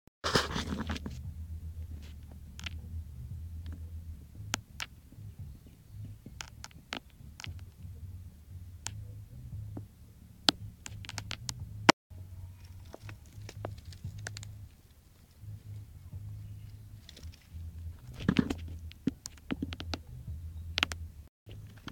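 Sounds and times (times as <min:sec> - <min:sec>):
camera handling rumble: 0:00.3 - 0:01.2, 0:12.7 - 0:15.4, 0:16.4 - 0:20.0.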